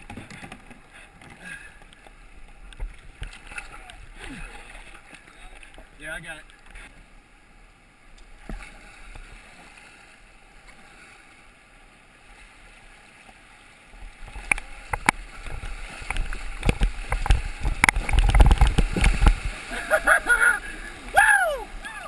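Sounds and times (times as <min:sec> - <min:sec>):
water splashing: 0:00.0 - 0:07.0, 0:12.2 - 0:22.0
paddle strokes: 0:00.0 - 0:07.2, 0:08.2 - 0:22.0
water knocking against hull: 0:14.2 - 0:19.6
river water rushing over rocks: 0:14.2 - 0:22.0.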